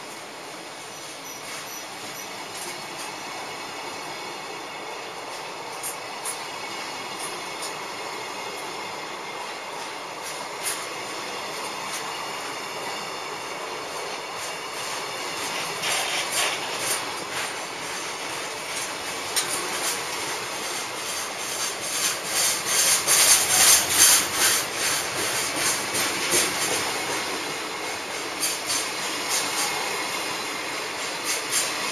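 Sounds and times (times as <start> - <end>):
electric locomotive passing: 0.0 - 31.9
wheels clattering over rail joints: 14.0 - 30.2.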